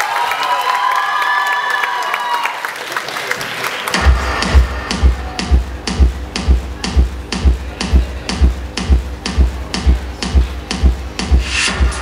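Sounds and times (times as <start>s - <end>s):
electronic dance music: 3.9s - 12.0s
four-on-the-floor kick drum: 3.9s - 12.0s.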